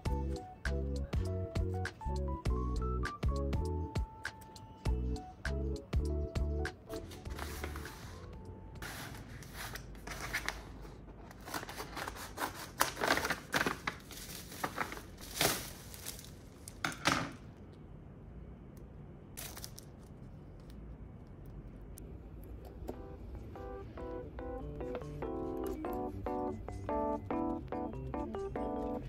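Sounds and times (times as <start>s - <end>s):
paper envelope ripping and rustling: 7.2s - 16.8s, 19.4s - 20.0s.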